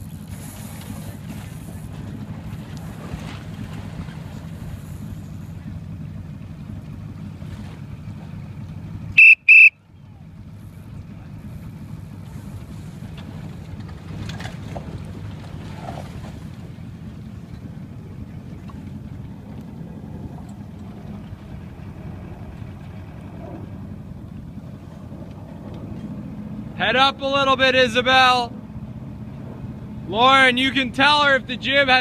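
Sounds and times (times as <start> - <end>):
motorboat engine rumble: 0.0 - 32.0
whistle blasts: 9.1 - 9.8.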